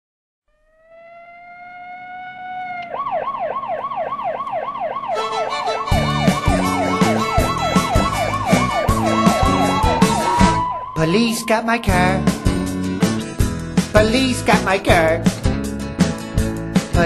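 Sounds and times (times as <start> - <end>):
police siren wailing and yelping: 0.6 - 13.2
band with steady drum beat: 5.9 - 10.6, 12.2 - 17.0.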